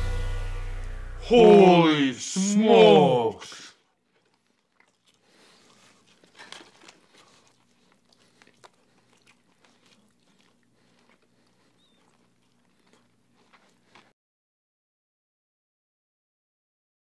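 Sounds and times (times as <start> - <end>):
crunching fried chicken: 3.8 - 14.1.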